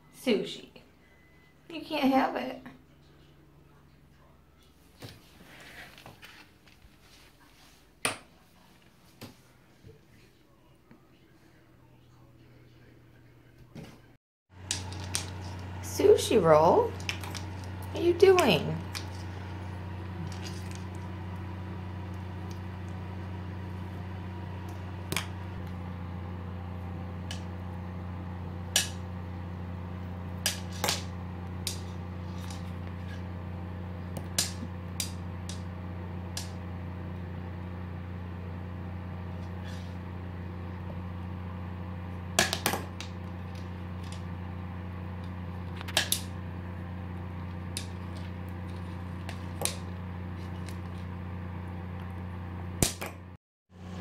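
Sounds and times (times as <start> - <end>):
steady low hum: 14.6 - 54.0.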